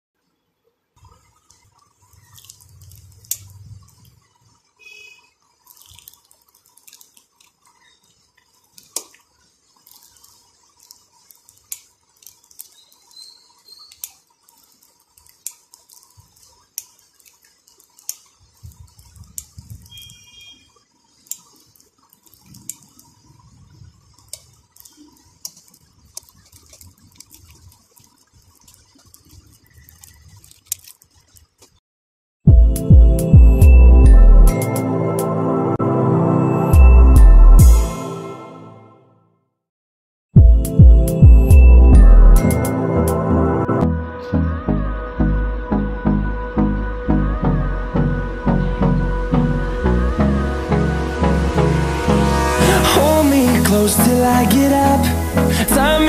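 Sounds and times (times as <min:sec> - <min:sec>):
low rumbling: 0:40.4 - 0:56.0.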